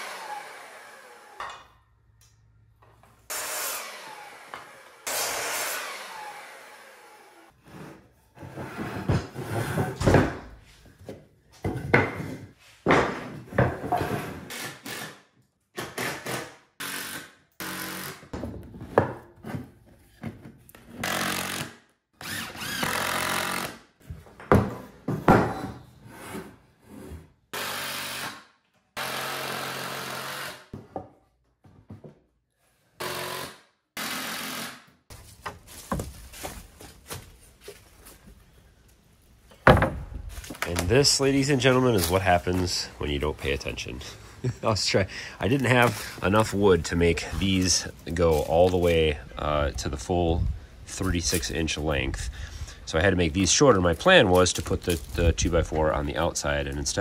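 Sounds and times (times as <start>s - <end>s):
wood being knocked: 39.6s - 40.2s.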